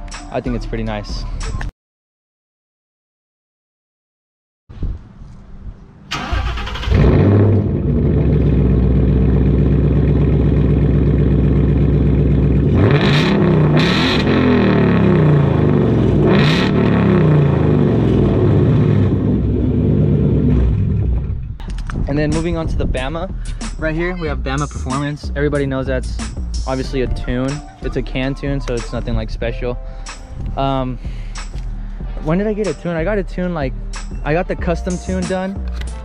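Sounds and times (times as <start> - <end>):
car engine starting and idling: 6.0 - 22.6
car engine revving: 6.1 - 21.6.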